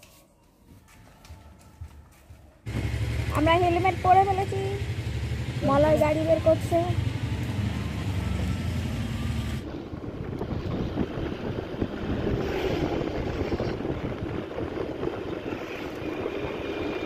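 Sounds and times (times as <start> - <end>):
road noise: 2.6 - 17.0
scooter engine humming: 2.6 - 17.0
wind rushing over microphone: 9.6 - 17.0.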